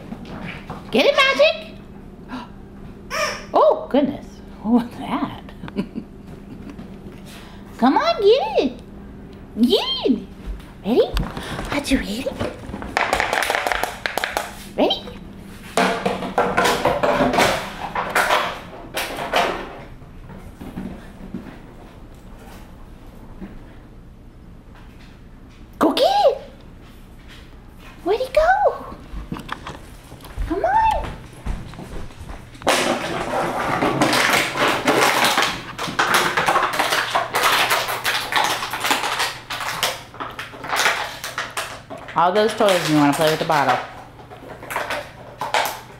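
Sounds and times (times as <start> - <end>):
plastic bottle clattering on floor: 12.4 - 14.6, 32.6 - 43.9.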